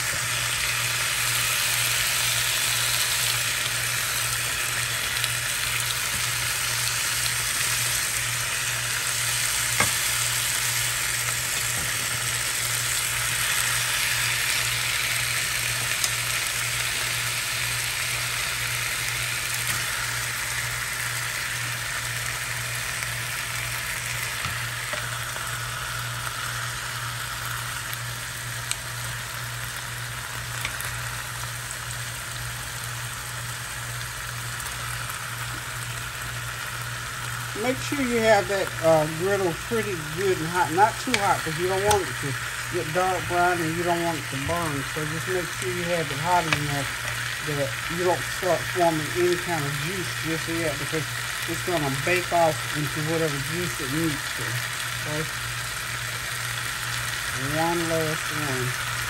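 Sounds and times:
chicken sizzling in hot oil: 0.0 - 59.0.

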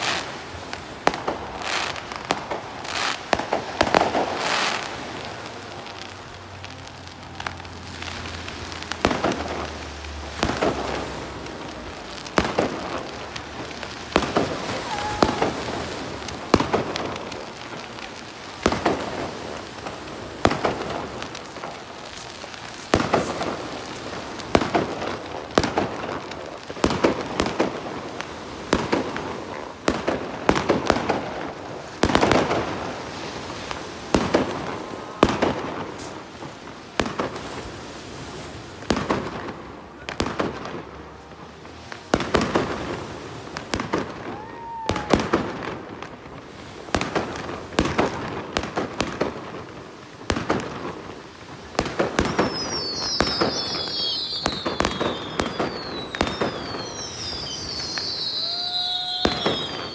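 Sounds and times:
fireworks bangs: 0.0 - 59.9
fireworks crackling: 0.0 - 59.9
high falling whistles: 52.3 - 59.9.

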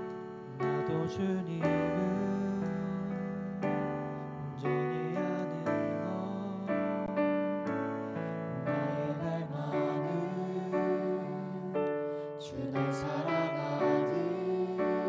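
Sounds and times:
piano: 0.0 - 15.0
people singing sustained notes: 8.0 - 15.0.

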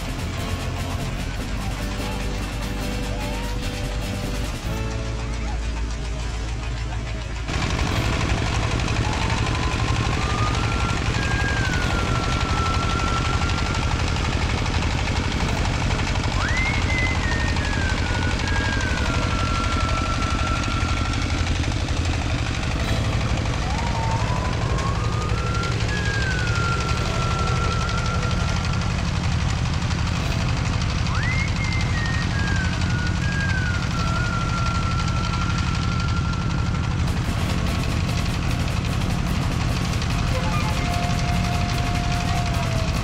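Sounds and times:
threshing machine engine running: 0.0 - 43.0.

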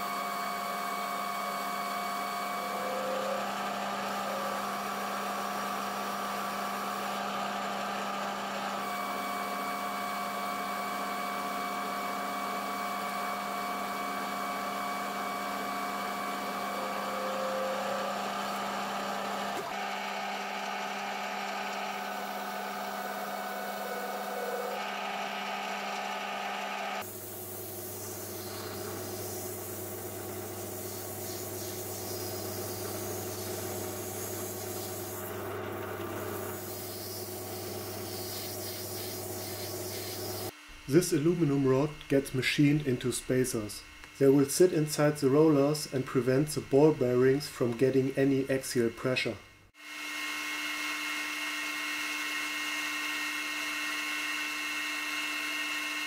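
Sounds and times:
metal lathe cutting: 0.0 - 40.5, 49.9 - 56.0
abrasive paper rubbing hiss: 27.0 - 35.4, 36.2 - 40.5.

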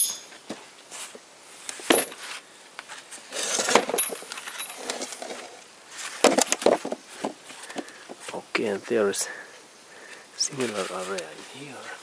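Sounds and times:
metal clinks and scraping: 0.0 - 0.4, 1.8 - 2.4, 3.2 - 5.6.

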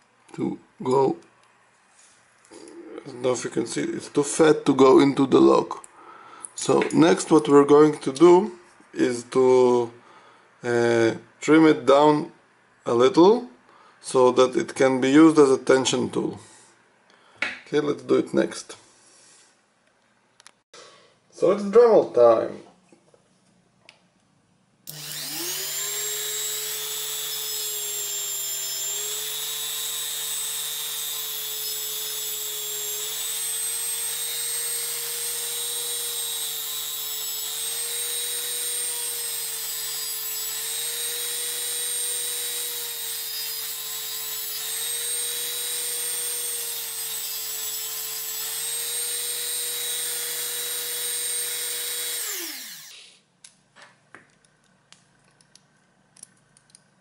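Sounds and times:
rotary tool whining: 24.9 - 53.0.

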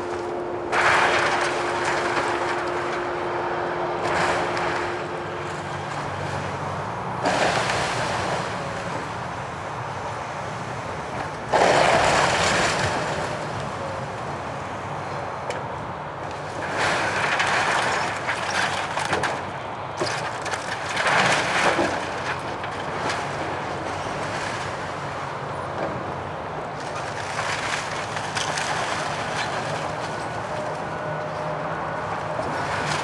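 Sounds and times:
excavator engine drone: 0.0 - 33.0
timber crunching and cracking: 26.8 - 30.9.

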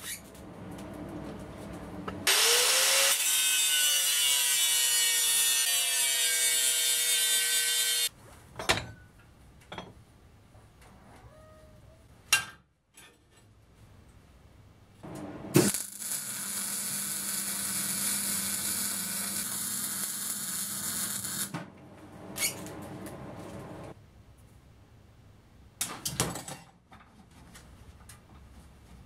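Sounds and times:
welding arc crackling and hissing: 15.1 - 21.5.

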